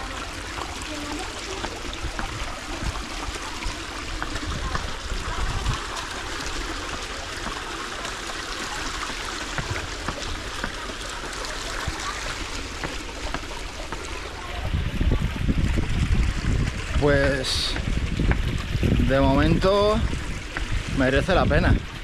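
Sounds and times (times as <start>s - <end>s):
water trickling down stone channel: 0.0s - 22.0s
wind rumble on microphone: 14.4s - 22.0s.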